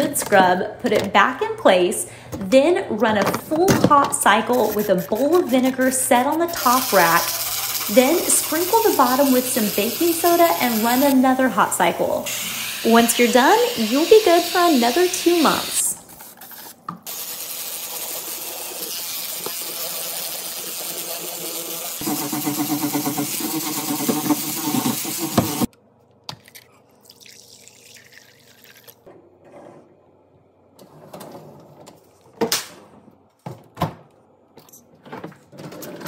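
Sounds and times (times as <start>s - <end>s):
water running from a faucet: 6.6s - 11.2s, 12.2s - 15.8s, 17.1s - 25.7s.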